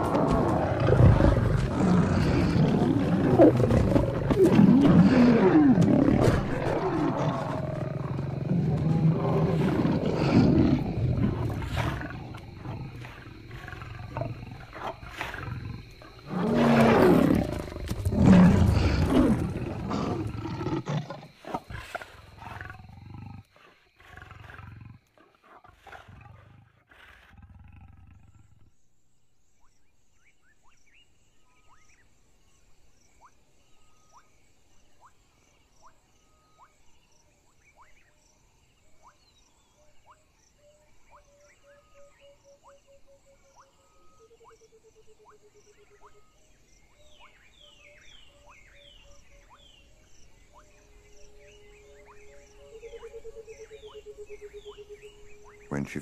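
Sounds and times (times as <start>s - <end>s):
lions snarling and roaring: 0.0s - 28.7s
faint insect chirping: 0.0s - 56.0s.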